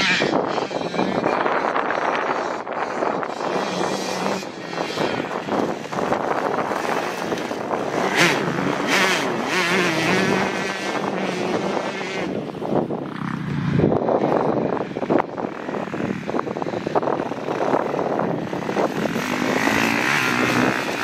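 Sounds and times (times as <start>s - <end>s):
dirt bike engine revving: 0.0s - 21.0s.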